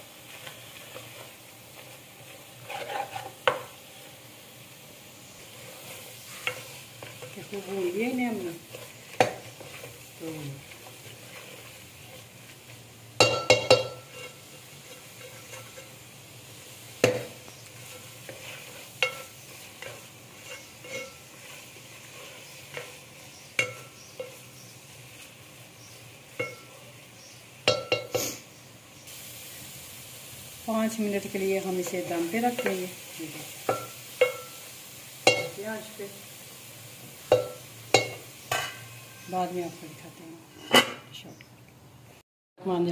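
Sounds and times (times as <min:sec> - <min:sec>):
faint frying sizzle: 0:00.0 - 0:42.9
spatula scraping metal pot: 0:02.5 - 0:03.6, 0:13.6 - 0:16.0, 0:17.8 - 0:24.5
spatula clinking against pot: 0:13.2 - 0:14.4, 0:19.0 - 0:21.2, 0:23.6 - 0:24.5, 0:26.4 - 0:26.7, 0:27.6 - 0:28.2, 0:33.7 - 0:34.6, 0:35.2 - 0:35.6, 0:37.3 - 0:39.3.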